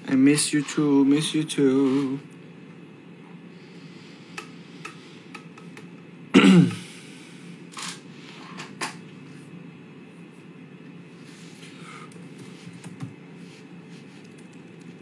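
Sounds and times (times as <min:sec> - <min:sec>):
person throat sound: 0:06.3 - 0:06.9.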